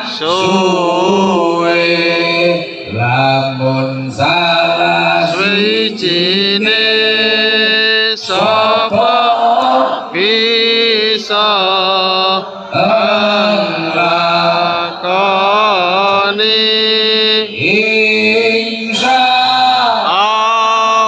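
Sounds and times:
amplified man chanting: 0.0s - 21.0s.

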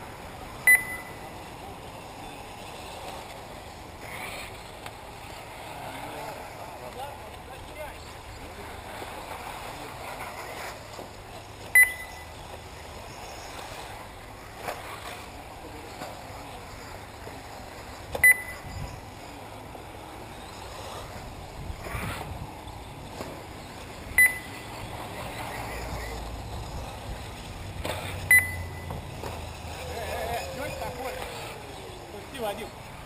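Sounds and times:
rc buggies running on a track: 0.0s - 33.0s
short electronic beeps: 0.6s - 1.3s, 11.8s - 12.3s, 18.2s - 18.9s, 24.2s - 24.6s, 28.3s - 28.9s.

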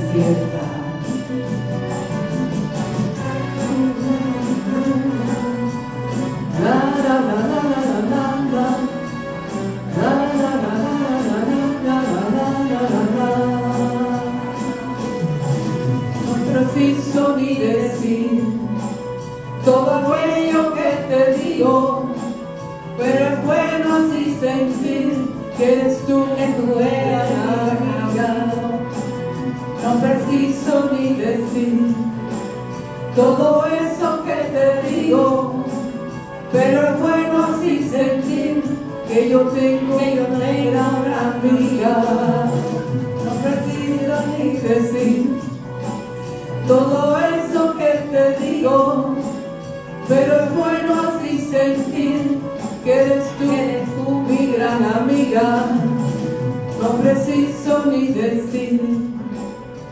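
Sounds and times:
women singing into microphones: 0.0s - 15.2s, 15.8s - 59.9s
karaoke ballad backing track: 0.0s - 59.9s.

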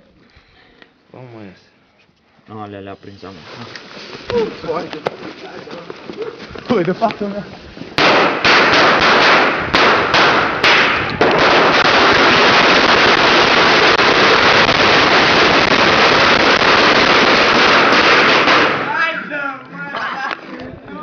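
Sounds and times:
firework hissing sparks: 7.6s - 18.8s
sharp cracks: 8.0s - 19.1s.

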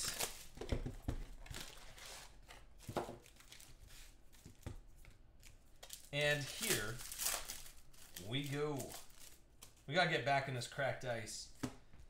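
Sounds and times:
foil wrappers crinkling: 0.0s - 0.6s, 5.7s - 9.9s.

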